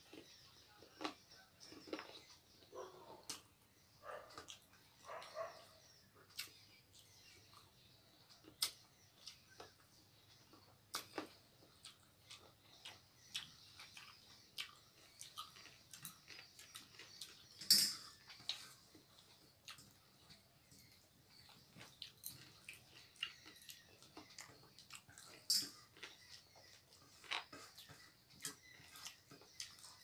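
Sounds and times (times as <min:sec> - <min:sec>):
fingers mixing rice with curry: 0:18.2 - 0:30.0.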